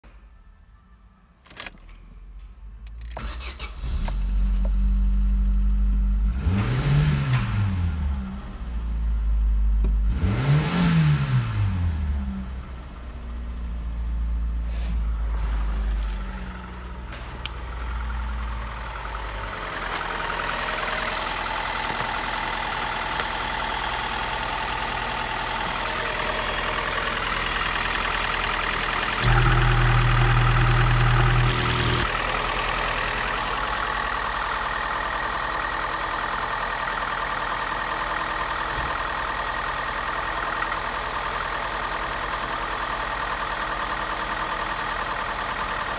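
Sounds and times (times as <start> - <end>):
car engine starting: 1.5 - 45.9
car engine revving: 6.2 - 8.6, 10.0 - 12.6, 15.2 - 35.3
car engine idling: 12.4 - 45.9.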